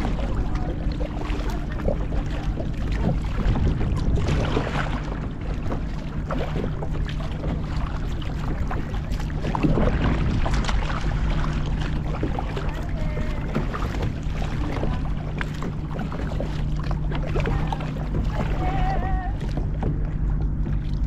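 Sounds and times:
paddle splashing in water: 0.0s - 21.0s
water against hull: 0.0s - 21.0s
wind rumble on microphone: 0.0s - 21.0s.

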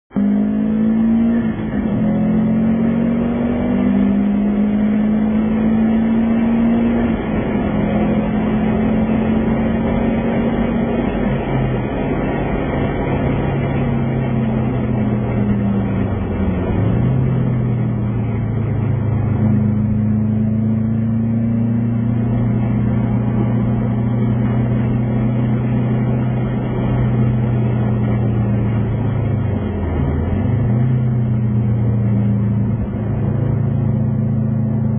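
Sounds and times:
car engine revving: 0.1s - 34.9s.

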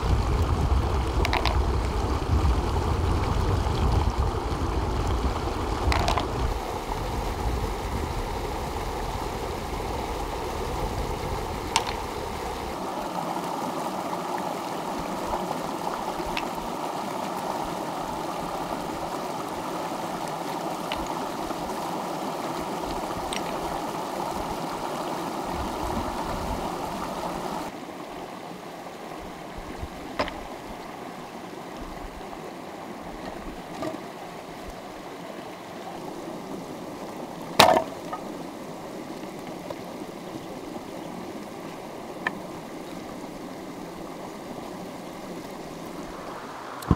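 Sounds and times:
stream rushing over rocks: 0.0s - 46.9s
stones clicking together: 1.2s - 1.6s, 5.9s - 6.4s, 11.7s - 12.1s.

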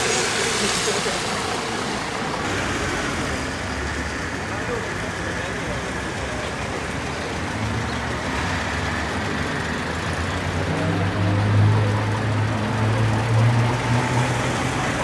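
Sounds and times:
car engine idling: 0.0s - 10.6s
street traffic: 0.0s - 15.0s.

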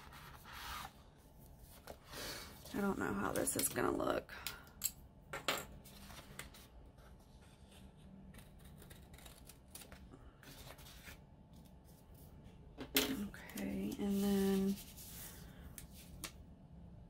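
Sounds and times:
scissors snipping paper: 8.3s - 10.0s.

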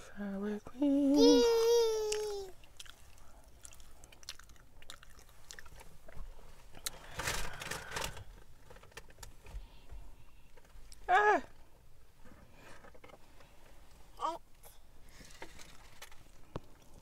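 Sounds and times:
eating mouth noises: 2.1s - 5.8s.

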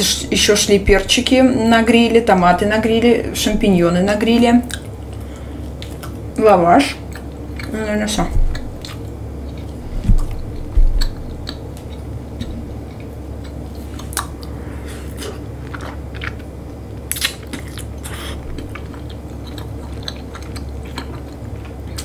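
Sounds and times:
steady low hum: 0.0s - 22.0s
chewing and biting food: 4.6s - 6.3s, 8.4s - 22.0s.

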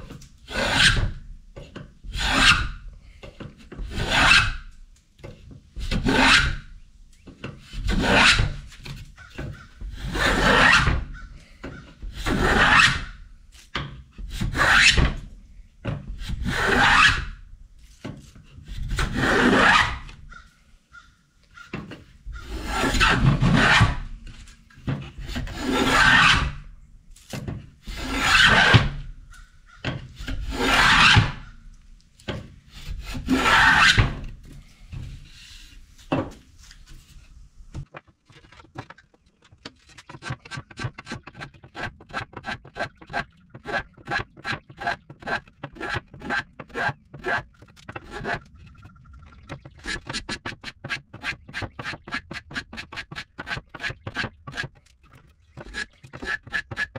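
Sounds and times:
block plane shaving wood: 0.5s - 1.0s, 2.0s - 2.6s, 3.7s - 4.5s, 7.6s - 13.1s, 14.2s - 15.0s, 18.7s - 20.0s, 22.4s - 24.0s, 25.2s - 26.4s, 27.8s - 31.6s, 32.3s - 34.2s, 39.6s - 48.6s, 49.6s - 54.9s, 55.5s - 56.9s.

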